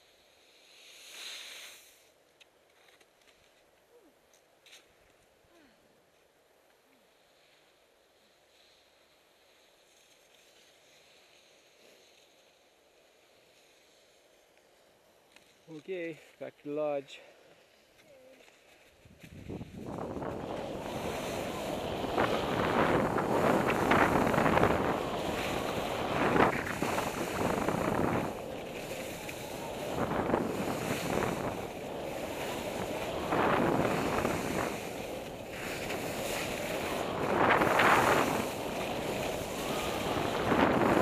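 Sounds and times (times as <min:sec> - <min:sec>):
skis hissing and scraping on snow: 0:00.0 - 0:03.7, 0:04.6 - 0:05.2, 0:06.1 - 0:41.0
wind rushing over microphone: 0:19.0 - 0:41.0.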